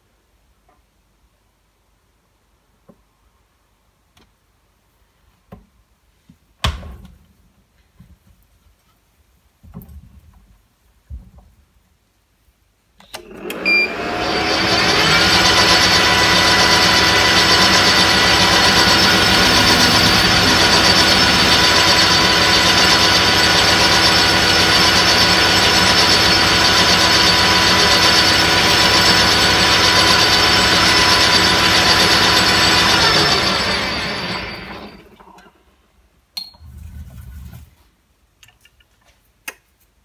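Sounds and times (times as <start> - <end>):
lathe motor and gears whine: 13.2 - 35.2.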